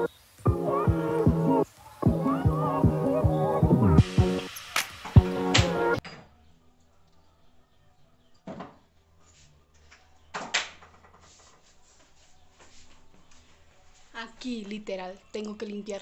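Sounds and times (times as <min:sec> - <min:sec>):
background music: 0:00.0 - 0:06.0.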